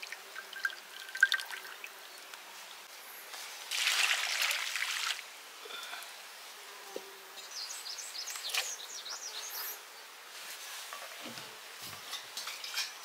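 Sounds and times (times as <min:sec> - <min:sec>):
water pouring and splashing: 0:00.0 - 0:01.9, 0:03.5 - 0:05.3.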